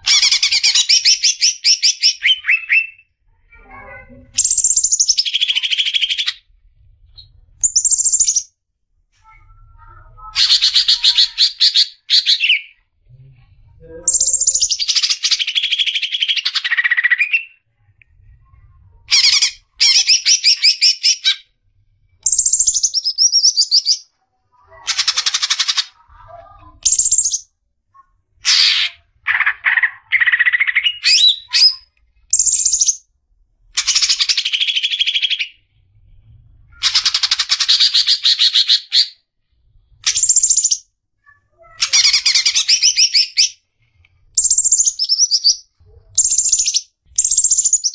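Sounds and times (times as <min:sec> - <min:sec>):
bird singing trills and whistles: 0:07.2 - 0:08.5, 0:14.1 - 0:17.6, 0:22.2 - 0:24.1, 0:26.8 - 0:27.5, 0:30.2 - 0:33.0, 0:40.0 - 0:40.8, 0:41.8 - 0:43.6, 0:44.4 - 0:47.9.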